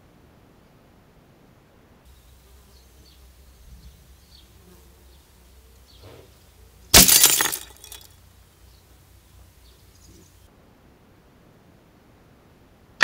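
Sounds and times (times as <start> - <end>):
glass tinkling: 7.0 - 8.1
light bulb shattering: 7.0 - 8.1.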